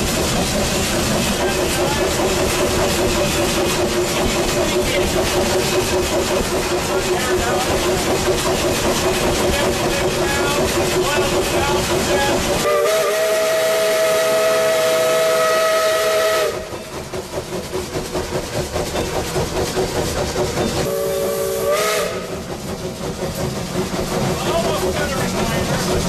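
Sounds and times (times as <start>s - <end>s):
steam locomotive running: 0.0s - 26.0s
steam locomotive whistle: 12.6s - 16.7s, 20.8s - 22.5s.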